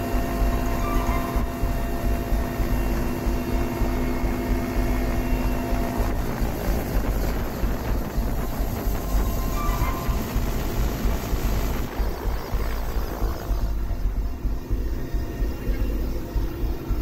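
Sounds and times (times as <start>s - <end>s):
helicopter engine and rotor drone: 0.0s - 17.0s.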